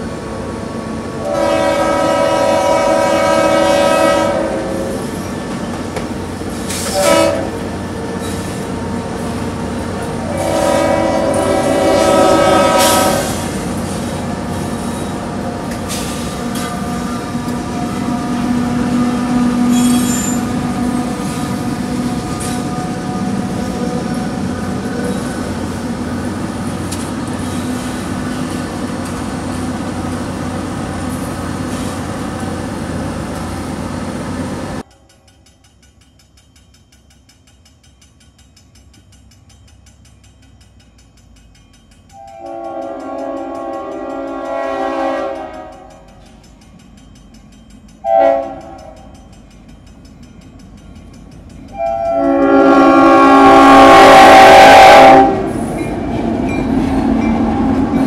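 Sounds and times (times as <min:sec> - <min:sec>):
heavy rail noise of train passing: 0:00.0 - 0:58.0
train horn: 0:01.2 - 0:05.1, 0:06.9 - 0:07.7, 0:10.0 - 0:13.5, 0:16.3 - 0:25.3, 0:42.2 - 0:46.0, 0:48.0 - 0:49.1, 0:51.7 - 0:55.7
high-pitched wheel squeal: 0:19.5 - 0:20.6.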